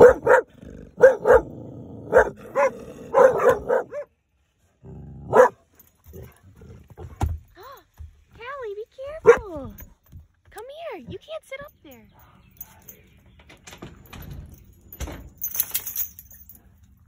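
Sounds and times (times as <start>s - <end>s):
dog barking: 0.0s - 4.1s, 5.2s - 5.6s, 9.2s - 9.5s.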